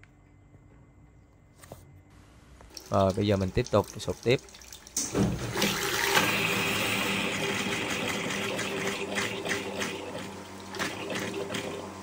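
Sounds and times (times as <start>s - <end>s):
faint steady hum: 0.0s - 5.2s
tap water splashing into basin: 2.7s - 6.3s.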